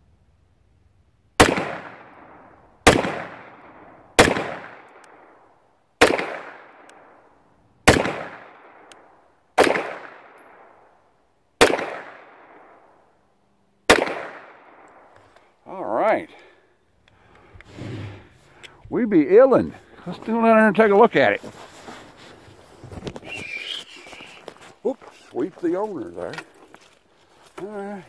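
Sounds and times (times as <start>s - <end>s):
pistol shots echoing: 1.4s - 5.4s, 6.0s - 7.2s, 7.8s - 9.0s, 9.6s - 10.9s, 11.6s - 12.9s, 13.9s - 15.1s.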